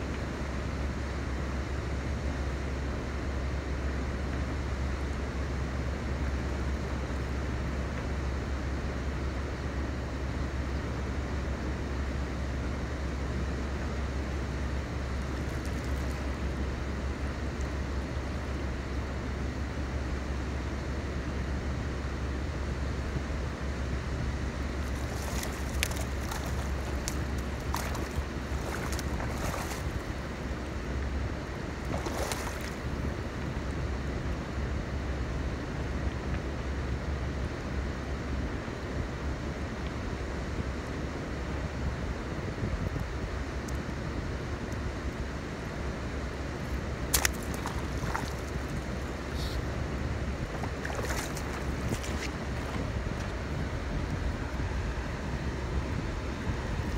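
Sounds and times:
fish splashing in water: 15.2 - 16.4, 24.7 - 30.9, 31.6 - 33.3, 46.6 - 53.2
wind rumble on microphone: 24.3 - 34.8, 46.6 - 56.9.

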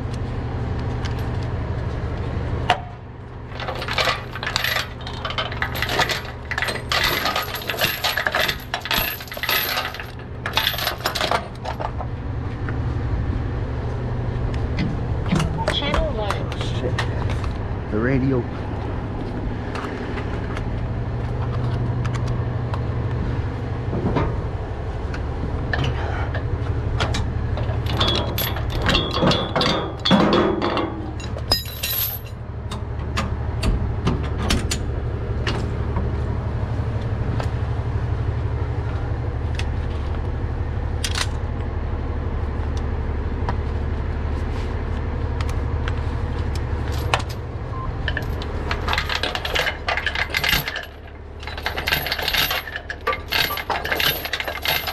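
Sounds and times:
truck engine idling: 0.0 - 31.7, 32.3 - 50.2
tow chains rattling: 3.5 - 12.0, 25.8 - 33.0, 46.8 - 47.4, 48.0 - 54.9.

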